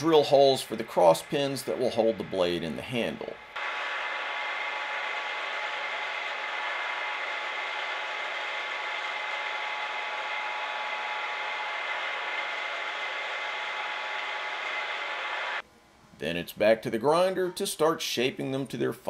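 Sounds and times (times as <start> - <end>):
drill press whining: 3.5 - 15.6.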